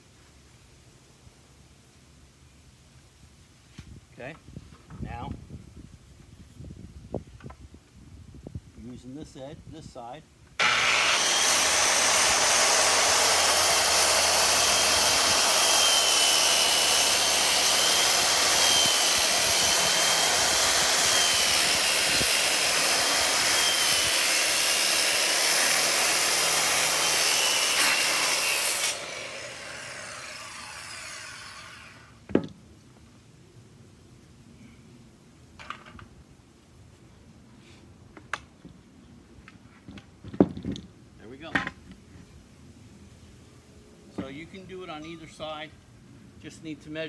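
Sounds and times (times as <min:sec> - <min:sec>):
circular saw cutting wood: 0:10.6 - 0:32.2.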